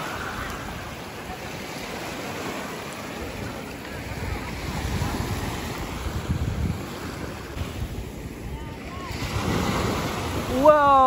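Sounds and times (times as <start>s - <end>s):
river waves lapping on sand: 0.0s - 11.0s
wind rumble on microphone: 3.2s - 11.0s.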